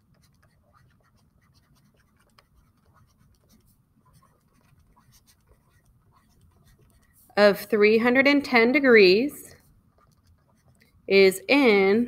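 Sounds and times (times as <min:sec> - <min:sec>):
handwriting scratching: 0:00.0 - 0:07.4, 0:09.6 - 0:11.1.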